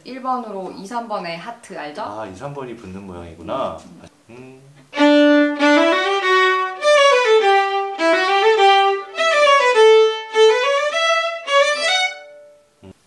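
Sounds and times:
violins playing a scale: 4.9s - 12.6s.

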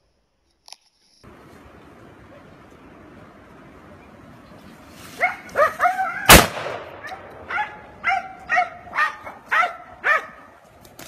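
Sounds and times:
dog yelping: 5.2s - 6.3s, 7.0s - 10.4s
loud sharp bang: 6.3s - 7.5s.

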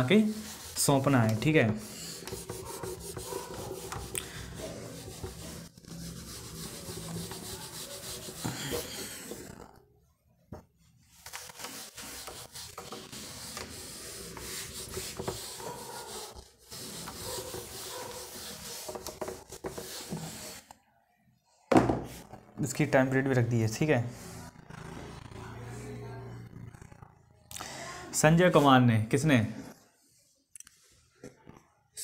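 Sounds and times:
duster rubbing on whiteboard: 0.0s - 9.7s, 11.1s - 20.7s.

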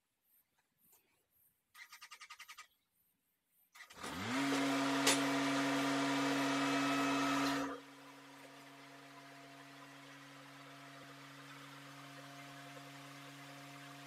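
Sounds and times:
tractor engine starting and running: 3.8s - 14.0s.

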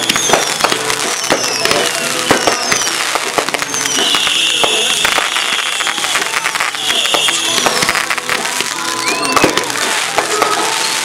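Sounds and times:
high steady whistle: 0.0s - 3.0s, 3.6s - 7.6s
falling firework whistles: 0.0s - 11.0s
fireworks bangs and crackles: 0.0s - 11.0s.

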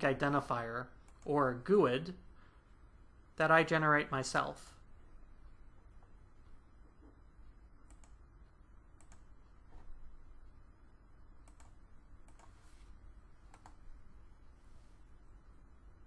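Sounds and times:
low steady hum: 0.0s - 16.0s
soft noisy sounds: 0.0s - 16.0s
mouse and keyboard clicks: 11.4s - 12.6s, 13.5s - 13.8s.

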